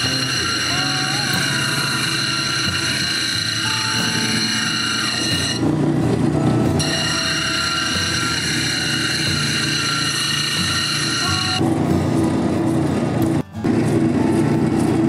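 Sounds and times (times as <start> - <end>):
machine motor whining: 0.0 - 11.7
rough grinding noise: 0.0 - 15.0.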